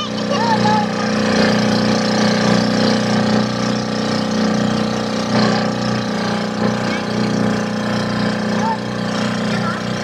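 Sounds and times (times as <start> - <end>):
boat engine running: 0.0 - 10.0
water washing along hull: 0.0 - 10.0.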